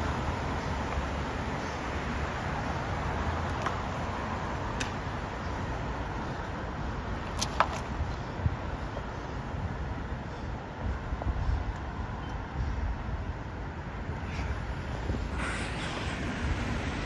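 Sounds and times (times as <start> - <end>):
cars driving past: 14.2 - 17.0.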